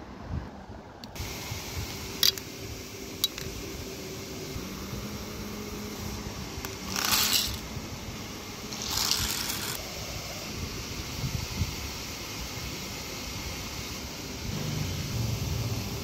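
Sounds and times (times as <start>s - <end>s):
lentils stirred in steel bowl: 6.7s - 7.6s, 8.7s - 9.8s.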